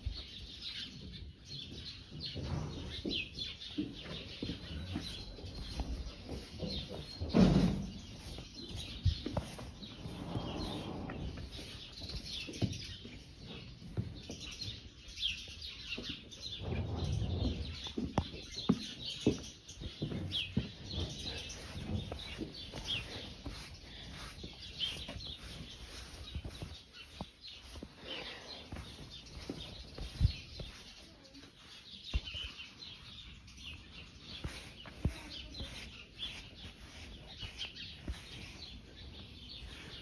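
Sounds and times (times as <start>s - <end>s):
small birds chirping: 0.0s - 40.0s
handling knocks and rustling: 1.8s - 14.6s.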